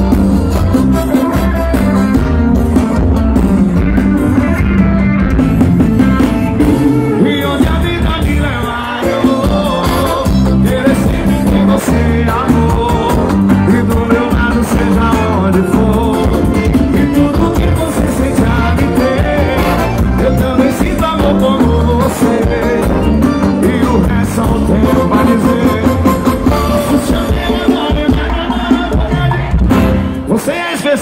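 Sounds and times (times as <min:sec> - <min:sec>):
live band playing over loudspeakers: 0:00.0 - 0:31.0
person singing: 0:06.6 - 0:31.0.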